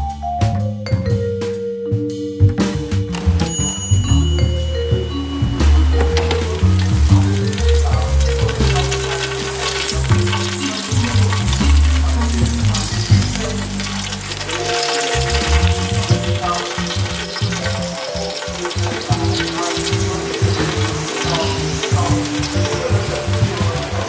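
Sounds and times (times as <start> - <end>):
low background music: 0.0 - 24.0
hot oil crackling and sizzling: 5.3 - 24.0.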